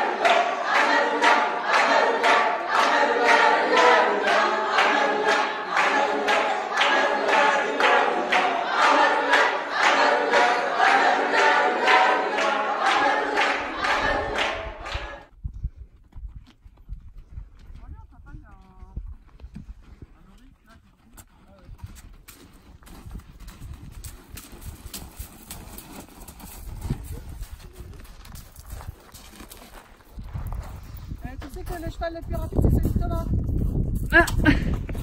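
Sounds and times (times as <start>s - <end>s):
group singing a cappella: 0.0s - 15.3s.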